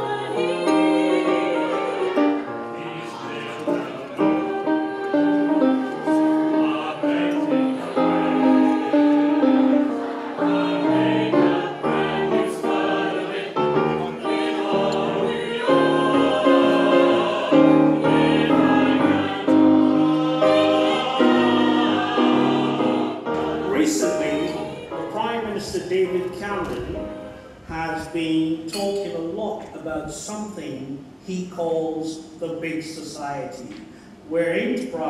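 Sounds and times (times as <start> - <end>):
mixed choir singing: 0.0 - 25.8.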